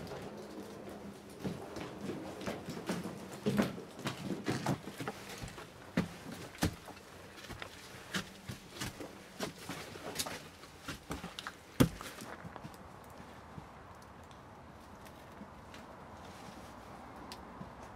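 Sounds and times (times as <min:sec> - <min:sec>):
footsteps on loose stone: 0:01.3 - 0:12.9.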